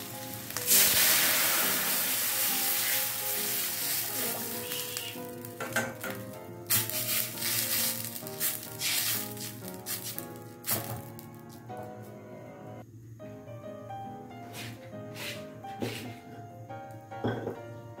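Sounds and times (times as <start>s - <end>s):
liquid sizzling in hot oil: 0.0s - 11.4s
background music: 0.0s - 18.0s
spatula scraping a wok: 0.4s - 5.3s.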